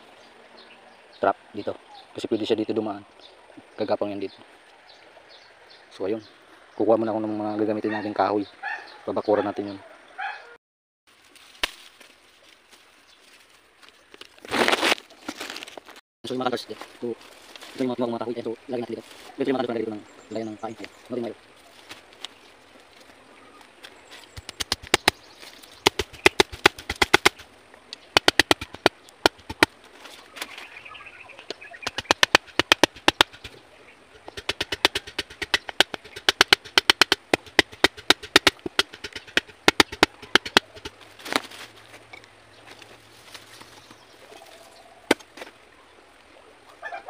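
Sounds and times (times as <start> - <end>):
machete striking bamboo: 11.6 - 11.9, 24.4 - 25.2, 25.8 - 27.4, 28.2 - 29.8, 31.8 - 33.6, 34.2 - 41.5, 45.1 - 45.4.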